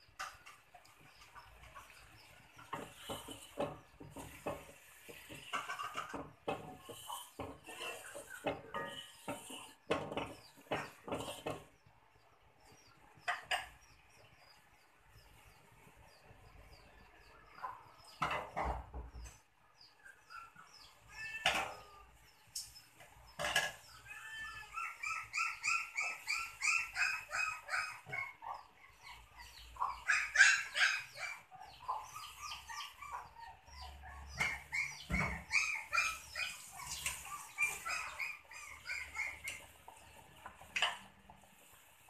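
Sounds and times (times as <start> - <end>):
birds chirping: 0.0 - 41.7.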